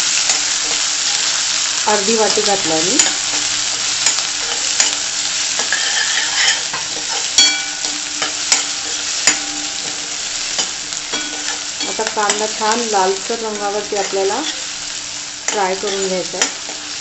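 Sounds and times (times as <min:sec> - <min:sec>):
onion sizzling in hot oil: 0:00.0 - 0:17.0
sharp metallic taps on pan: 0:02.9 - 0:12.8
metal spatula scraping pan: 0:03.0 - 0:12.5.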